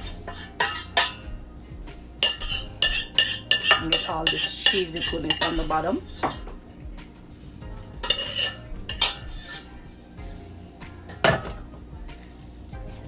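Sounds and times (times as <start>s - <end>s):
metal spoon scraping cookware: 0.0s - 1.4s, 2.2s - 6.5s, 8.0s - 9.8s.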